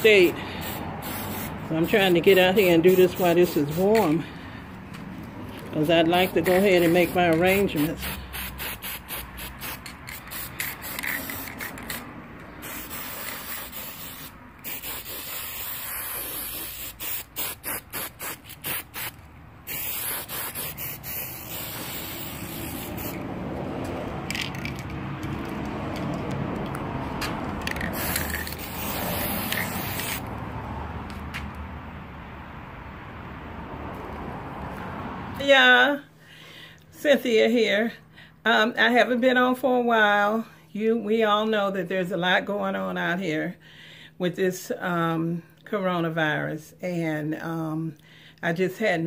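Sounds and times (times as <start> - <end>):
spray can hissing: 0.0 - 4.2, 6.1 - 23.3, 27.7 - 30.3.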